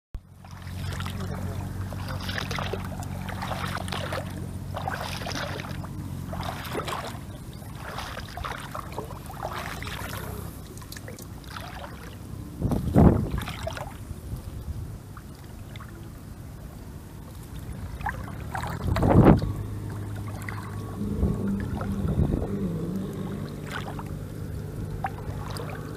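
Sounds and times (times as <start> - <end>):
shallow water splashing: 0.2 - 25.9
low bumps: 17.8 - 25.9.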